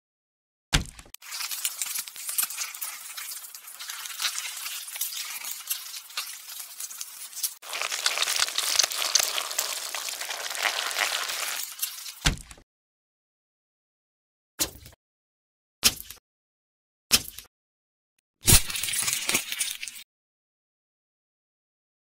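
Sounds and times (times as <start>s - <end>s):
burger patty sizzling in a pan: 1.2s - 12.2s.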